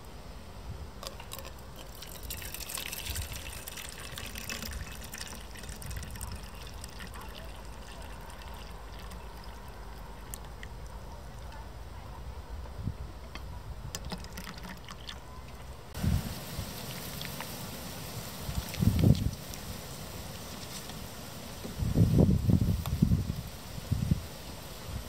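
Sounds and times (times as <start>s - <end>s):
water pouring into metal cup: 1.0s - 10.9s, 14.0s - 15.2s.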